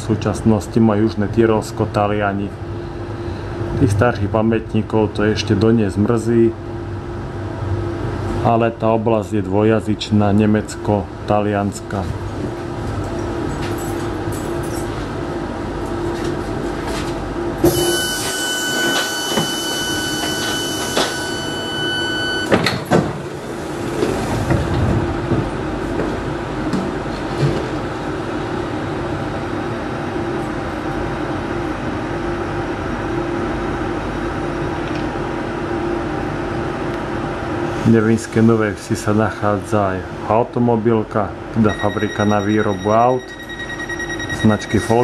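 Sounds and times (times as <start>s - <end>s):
train interior hum: 0.0s - 40.5s
high steady tone: 17.6s - 22.6s, 41.6s - 45.0s.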